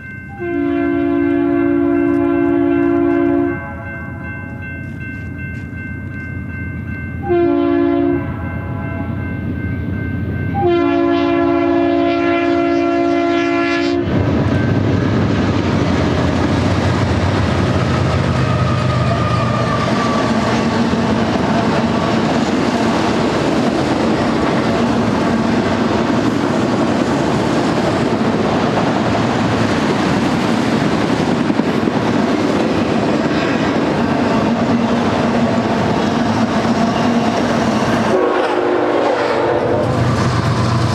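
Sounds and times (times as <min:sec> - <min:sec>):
crossing signal bell: 0:00.0 - 0:13.2, 0:14.5 - 0:15.1
train cars rumbling and clacking: 0:00.0 - 0:13.2, 0:14.0 - 0:40.9
locomotive air horn: 0:00.3 - 0:03.9, 0:07.2 - 0:09.1, 0:10.5 - 0:14.2, 0:18.4 - 0:20.8, 0:38.0 - 0:40.1.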